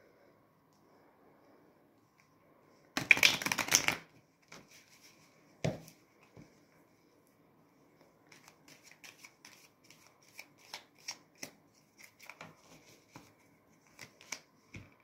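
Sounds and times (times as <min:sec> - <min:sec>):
playing cards riffle-shuffled: 0:03.0 - 0:06.0, 0:08.3 - 0:14.5.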